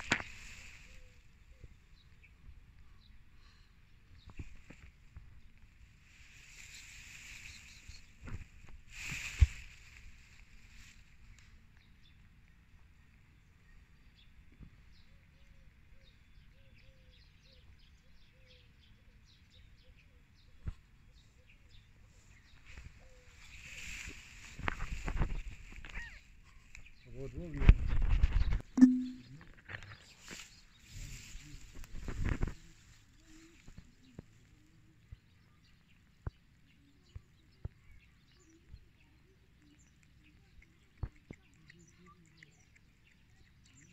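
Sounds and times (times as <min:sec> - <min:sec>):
high bird chirps: 0:28.8 - 0:29.4
low repeated bird note: 0:28.8 - 0:29.4.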